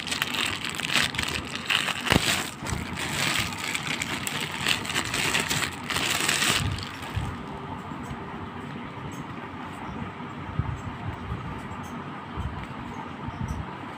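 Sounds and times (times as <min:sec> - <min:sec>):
plastic wrapping crinkling: 0:00.0 - 0:07.5.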